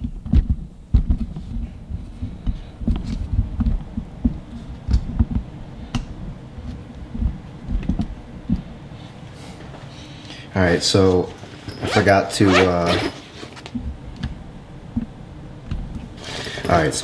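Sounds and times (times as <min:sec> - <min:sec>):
dull thuds and bumps: 0:00.0 - 0:05.5.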